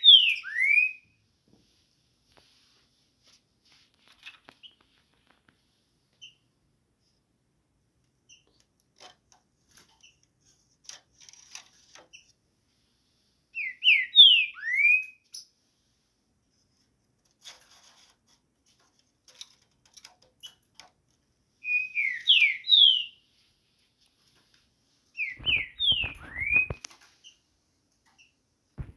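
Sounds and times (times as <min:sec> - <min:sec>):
bird whistled song: 0:00.0 - 0:01.2, 0:13.5 - 0:15.5, 0:21.6 - 0:23.2, 0:25.1 - 0:26.9.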